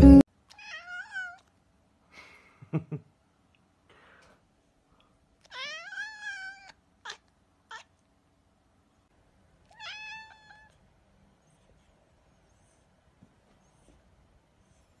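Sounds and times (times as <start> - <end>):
cat meowing: 0.5 - 1.5, 5.4 - 7.9, 9.6 - 10.8.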